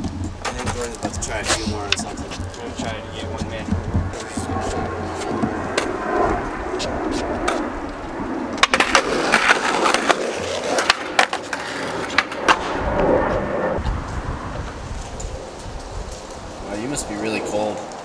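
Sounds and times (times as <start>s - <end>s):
skateboard clacking on ground: 0.0s - 7.7s, 8.6s - 12.8s
skateboard wheels rolling on concrete: 0.0s - 18.0s.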